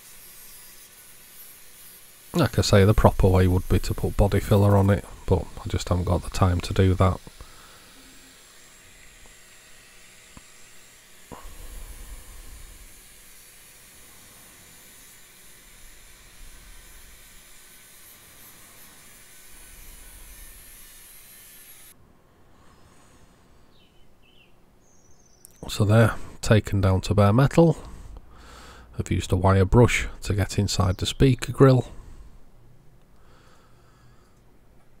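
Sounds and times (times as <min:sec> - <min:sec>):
angle grinder sanding metal: 0:00.0 - 0:22.0.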